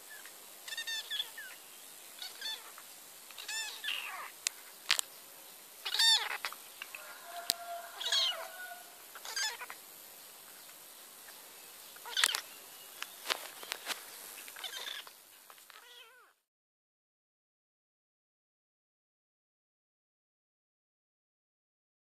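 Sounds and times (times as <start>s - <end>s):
kitten mewing: 5.8s - 6.4s, 8.0s - 9.7s, 14.6s - 15.1s, 15.8s - 16.4s.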